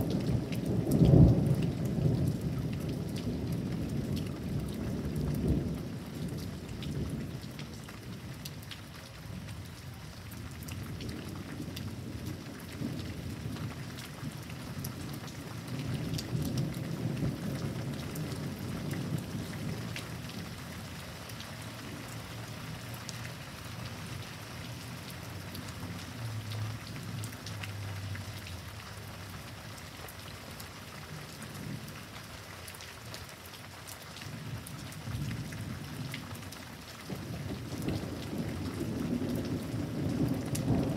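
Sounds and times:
steady rain: 0:00.0 - 0:40.9
thunder rumbling: 0:10.9 - 0:20.8, 0:37.1 - 0:40.9.

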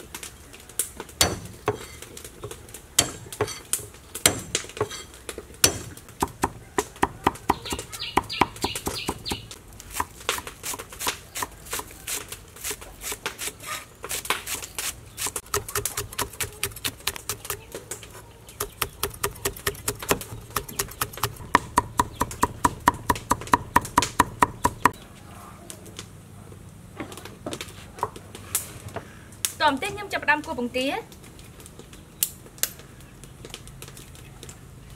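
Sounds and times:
cleaver chopping on wooden board: 0:01.2 - 0:03.6, 0:04.2 - 0:05.0, 0:05.6 - 0:11.9, 0:15.3 - 0:17.6, 0:18.6 - 0:25.0.

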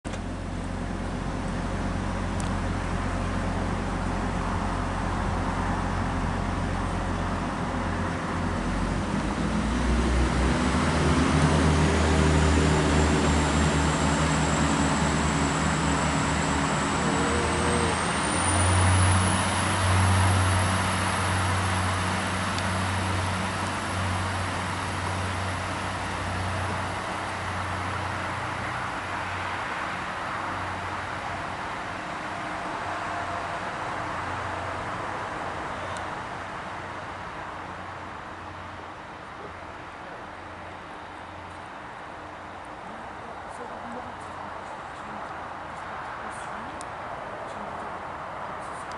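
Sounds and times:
train diesel engines: 0:00.1 - 0:48.9
thin high whine: 0:13.4 - 0:20.6.

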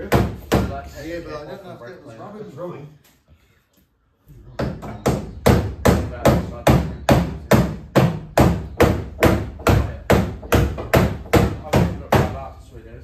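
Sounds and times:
hammer beating sheet metal: 0:00.0 - 0:00.9, 0:04.6 - 0:12.5.

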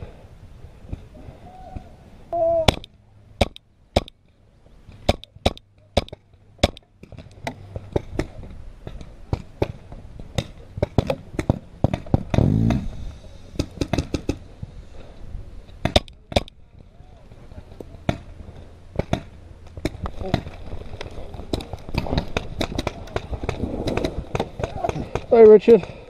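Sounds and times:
paintball markers firing: 0:02.7 - 0:04.2, 0:15.8 - 0:16.6, 0:19.0 - 0:25.5.

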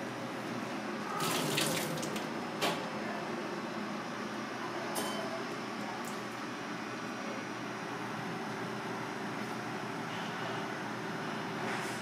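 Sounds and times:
steady background hum: 0:00.0 - 0:12.0
water pouring into a sink: 0:01.2 - 0:02.3.

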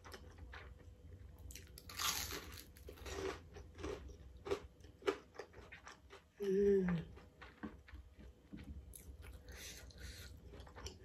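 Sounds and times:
crunching fried shrimp: 0:01.4 - 0:06.4.

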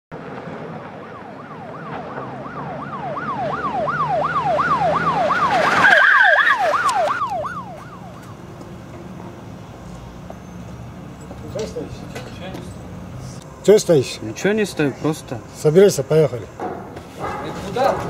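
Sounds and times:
car tyre and engine noise: 0:00.1 - 0:18.0
police siren wailing: 0:00.5 - 0:08.6.

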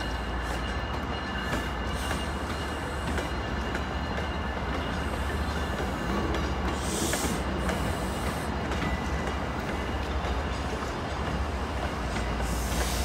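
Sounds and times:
train rumbling: 0:00.0 - 0:13.0
brief air hiss: 0:12.5 - 0:13.0.

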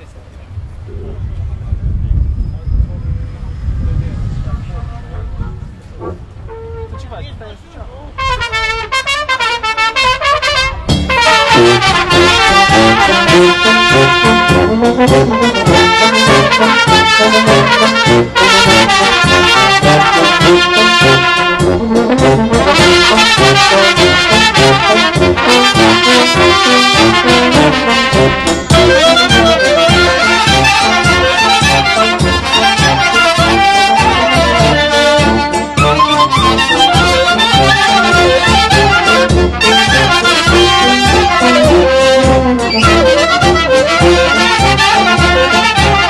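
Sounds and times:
trumpets: 0:05.1 - 0:07.4, 0:08.1 - 0:46.0
brass band playing folk tune: 0:06.0 - 0:07.3, 0:08.1 - 0:46.0
steady bass line: 0:10.8 - 0:46.0.

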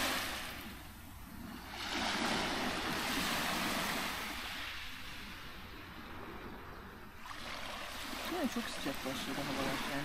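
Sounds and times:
wave washing up pebble beach: 0:00.0 - 0:00.6.

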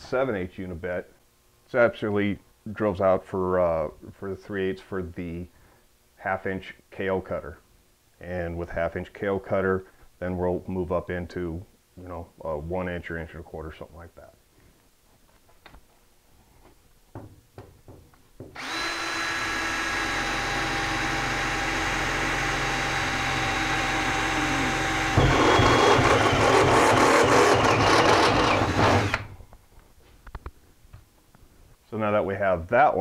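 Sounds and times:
cordless drill drilling through steel: 0:18.6 - 0:29.4.

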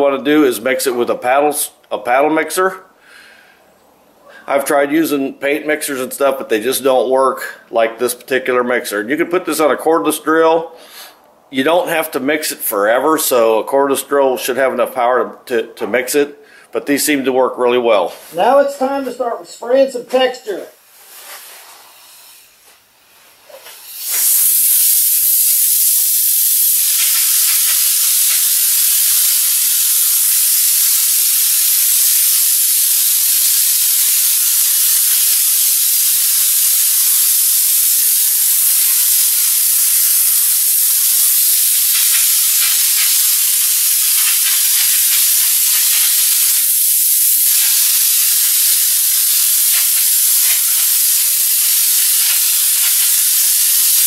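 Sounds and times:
spray gun air hissing: 0:20.9 - 0:54.0.

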